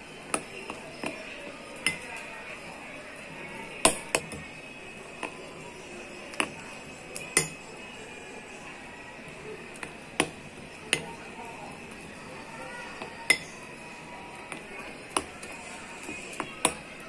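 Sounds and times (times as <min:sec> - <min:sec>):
spoon clinking against glass bowl: 0:01.8 - 0:02.2, 0:07.2 - 0:07.7.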